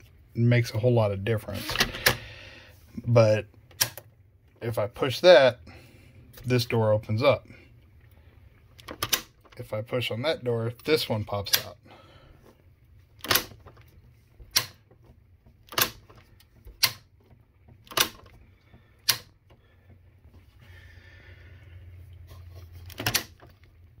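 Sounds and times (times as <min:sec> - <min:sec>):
refrigerator doors clicking: 0:13.2 - 0:13.8, 0:15.6 - 0:18.4, 0:22.8 - 0:23.5.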